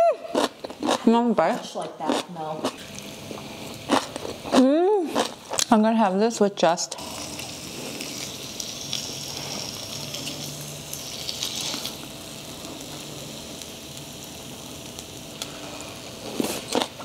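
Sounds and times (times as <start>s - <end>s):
meat sizzling on a hot grill: 7.0s - 17.0s.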